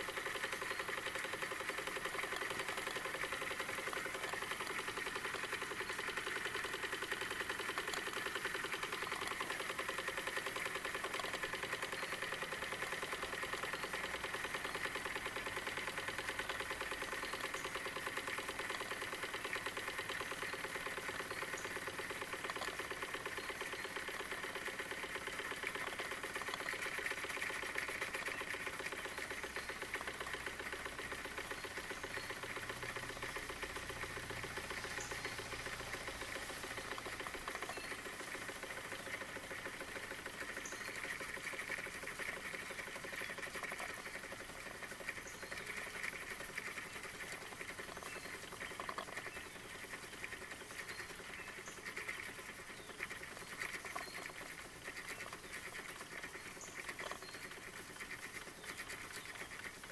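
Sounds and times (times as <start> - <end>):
toy steam engine clattering: 0.0 - 59.9.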